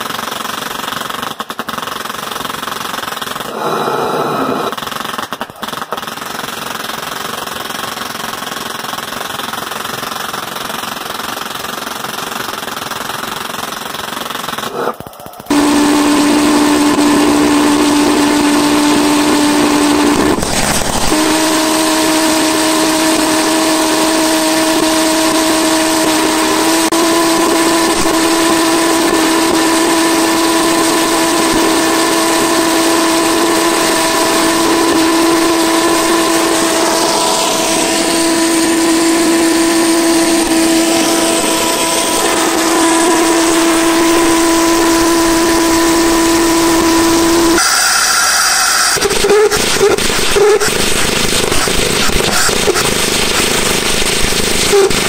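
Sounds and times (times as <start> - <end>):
pulse jet engine buzzing: 3.5 - 4.8, 14.6 - 55.0.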